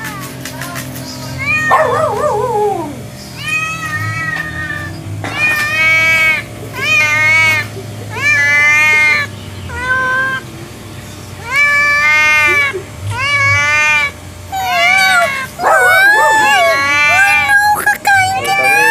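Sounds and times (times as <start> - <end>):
cat meowing: 1.4 - 10.4, 11.4 - 17.8.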